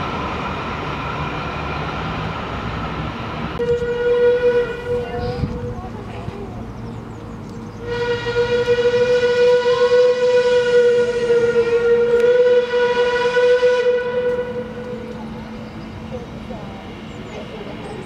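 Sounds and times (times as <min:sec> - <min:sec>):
steam whistle blast: 0:03.6 - 0:05.4, 0:07.8 - 0:15.1.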